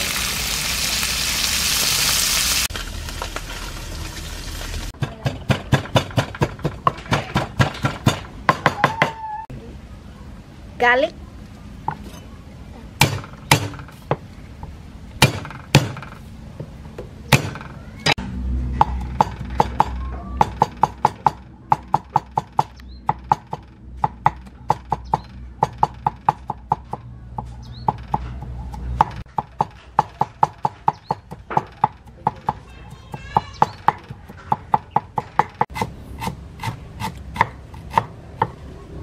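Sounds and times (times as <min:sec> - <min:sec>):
cleaver chopping on wooden board: 0:13.0 - 0:14.2, 0:15.2 - 0:16.1, 0:33.2 - 0:38.6.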